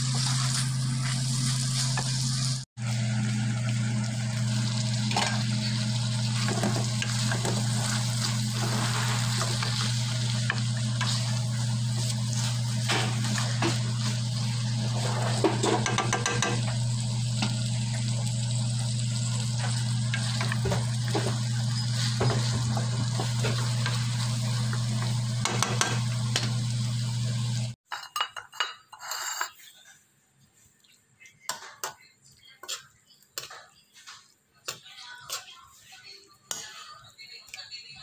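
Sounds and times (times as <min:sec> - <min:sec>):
spatula scraping wok: 0:00.0 - 0:02.7, 0:04.0 - 0:27.3, 0:28.7 - 0:30.1
food sizzling: 0:00.0 - 0:27.8.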